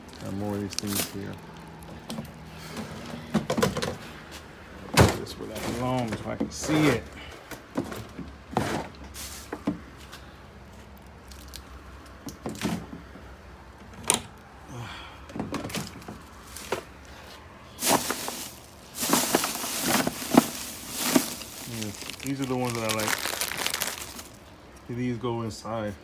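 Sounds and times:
rustling: 16.1 - 24.5.

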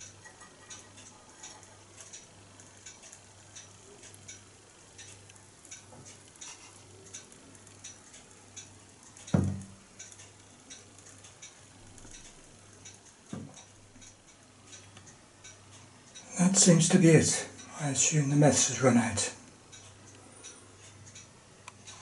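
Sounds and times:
pop-pop boat ticking and crackling: 0.0 - 22.0.

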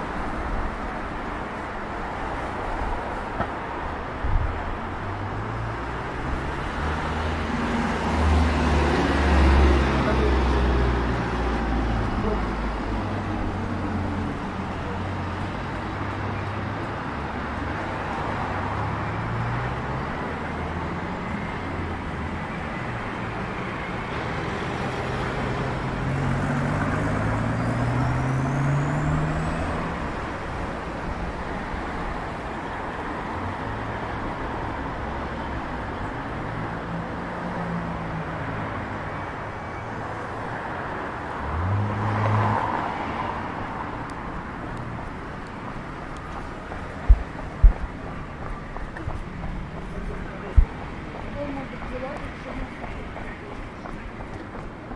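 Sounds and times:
traffic driving past: 0.0 - 54.9
loud vehicle passing close: 24.9 - 30.2
vehicle engine speeding up: 26.0 - 30.1.

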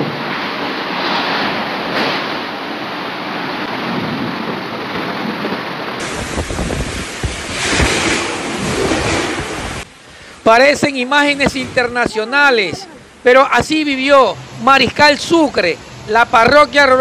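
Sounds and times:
wind buffeting microphone: 0.0 - 10.0
torrential rain: 0.0 - 17.0.

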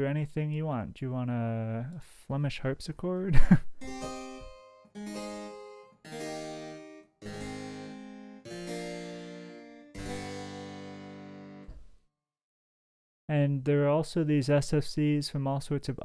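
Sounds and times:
harpsichord plucked chords: 3.8 - 11.9.

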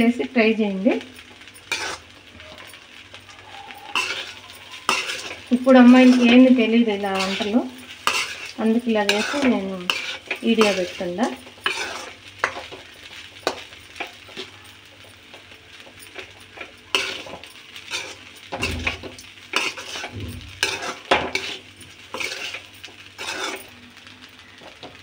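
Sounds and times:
metal spoon scraping pan: 1.2 - 2.8, 3.7 - 14.5, 15.3 - 24.1
spoon knocking pan: 3.7 - 23.7.

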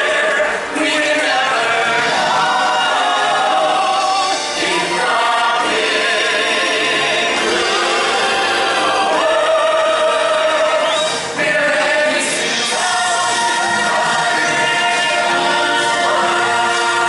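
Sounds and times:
musical accompaniment: 0.0 - 17.0
several voices singing show tune: 0.0 - 17.0.

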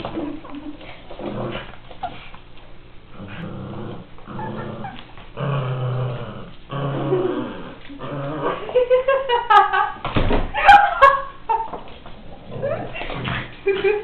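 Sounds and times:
dog growling: 1.2 - 2.2, 3.1 - 8.8.

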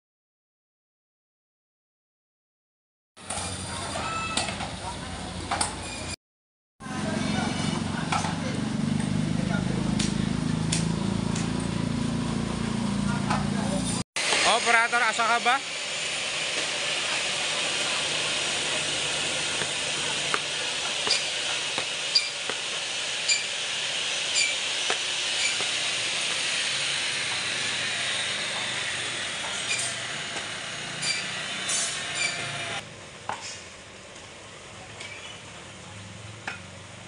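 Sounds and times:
band saw cutting meat and bone: 14.2 - 32.8.

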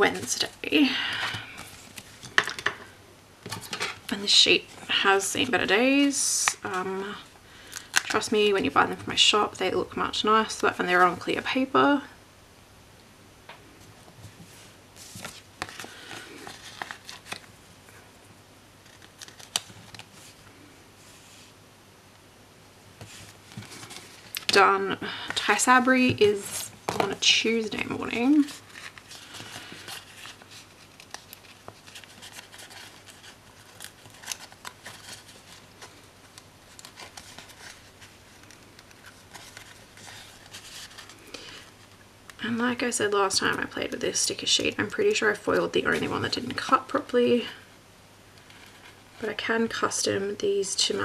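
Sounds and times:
paper sheets rustling: 14.2 - 17.5, 18.8 - 20.4, 23.0 - 41.7.

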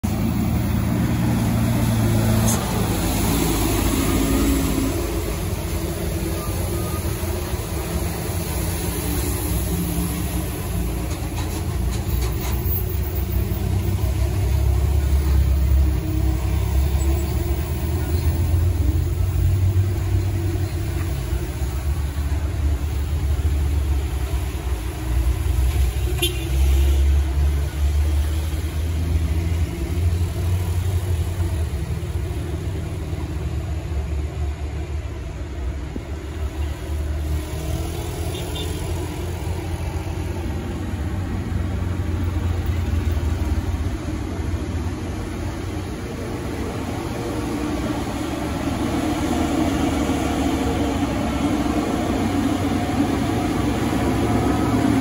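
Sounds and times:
vehicle engines climbing: 0.0 - 26.2
loaded truck rumbling: 0.0 - 55.0.

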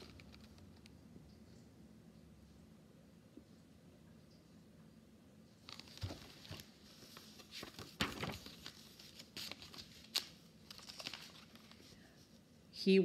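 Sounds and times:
paper pages rustling: 5.6 - 12.4.

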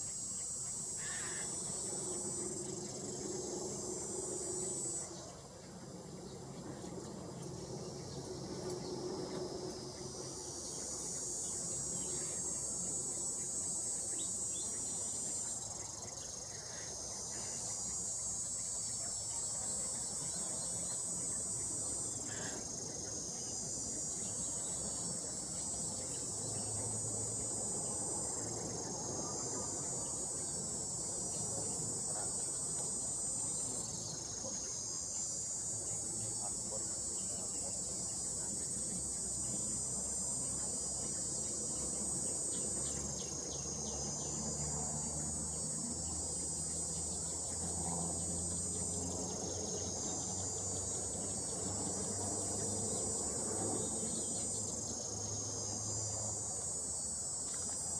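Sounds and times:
insects shrilling: 0.0 - 5.2
faint low outdoor hum: 0.0 - 57.9.

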